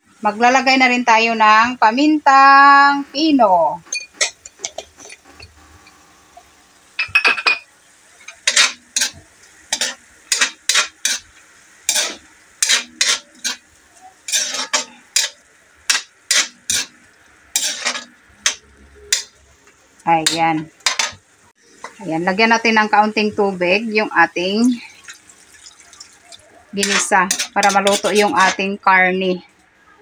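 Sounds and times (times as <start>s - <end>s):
faint sizzle: 0.0s - 30.0s
metal spoon scraping a wok: 8.2s - 11.3s, 11.9s - 13.6s, 14.2s - 19.4s, 20.2s - 21.2s, 26.8s - 28.8s.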